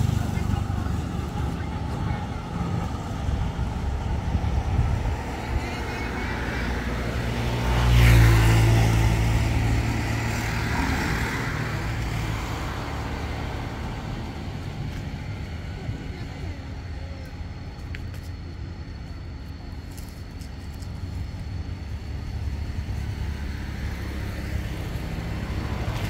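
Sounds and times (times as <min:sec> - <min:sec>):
vehicle driving past: 0:00.0 - 0:17.6
steady traffic noise: 0:00.0 - 0:26.0.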